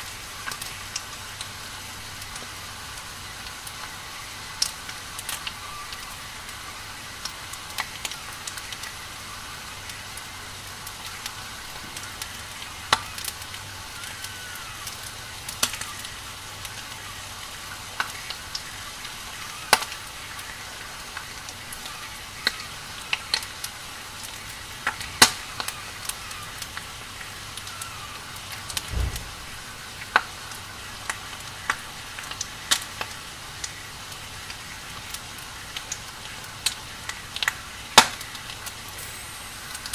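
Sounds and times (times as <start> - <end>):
fire crackling and popping: 0.0 - 39.9
low thud: 28.8 - 30.2.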